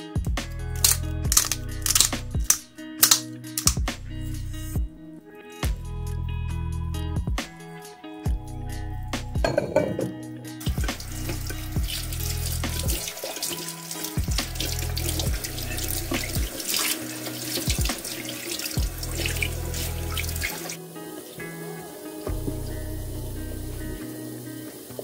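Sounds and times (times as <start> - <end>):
eggs sizzling in hot oil: 10.6 - 25.0.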